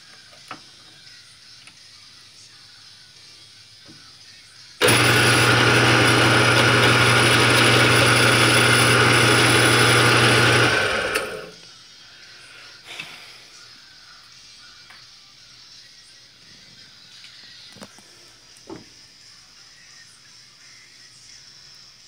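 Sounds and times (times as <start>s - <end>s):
electric drill running: 4.8s - 11.6s.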